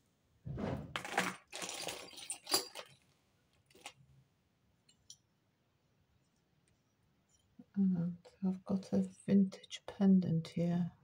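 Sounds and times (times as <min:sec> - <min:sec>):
plastic bags rustling: 0:00.9 - 0:04.0
jewellery clinking: 0:01.0 - 0:04.0, 0:04.8 - 0:05.3, 0:08.9 - 0:09.6.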